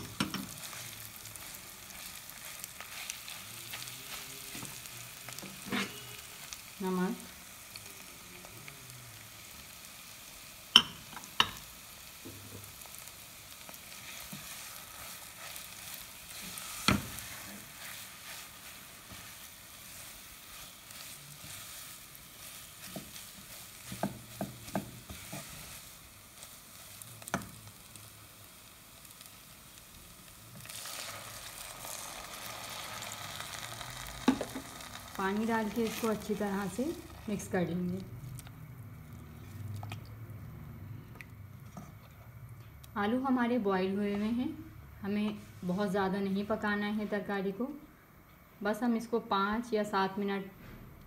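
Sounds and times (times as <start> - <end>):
food sizzling in a pan: 0.0 - 39.8.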